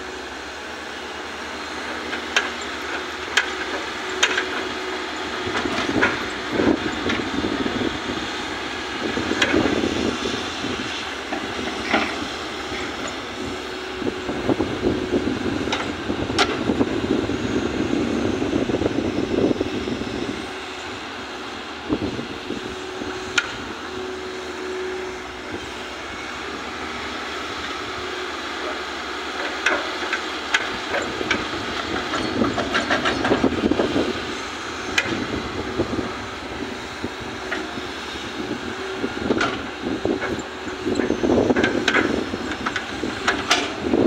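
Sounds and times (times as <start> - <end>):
excavator diesel engine running: 0.0 - 44.0.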